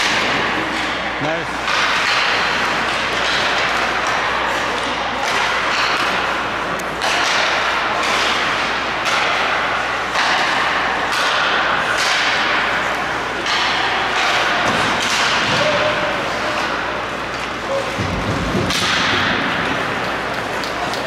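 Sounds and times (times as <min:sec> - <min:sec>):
sticks and puck knocking: 0:07.0 - 0:15.9.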